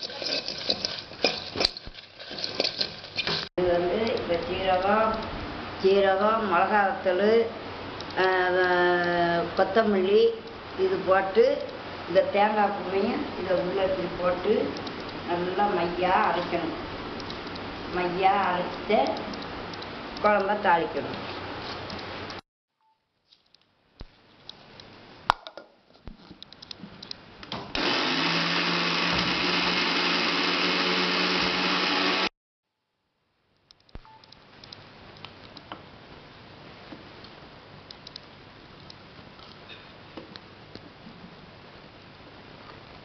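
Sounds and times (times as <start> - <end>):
electric mixer grinder running: 27.8 - 32.3.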